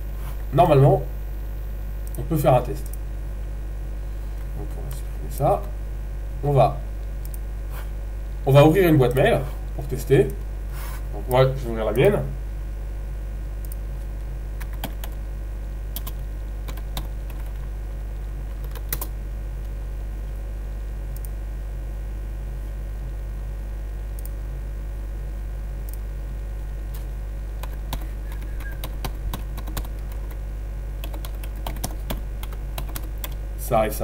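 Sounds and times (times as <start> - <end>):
low electrical hum: 0.0 - 34.0
typing on computer keyboard: 14.6 - 15.2, 27.6 - 30.4, 31.0 - 33.4.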